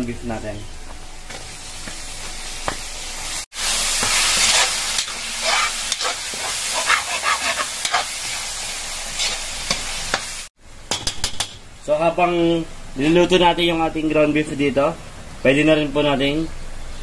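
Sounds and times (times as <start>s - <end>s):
meat sizzling in oil: 1.3s - 10.5s
metal spatula scraping: 3.9s - 8.4s, 9.1s - 9.9s.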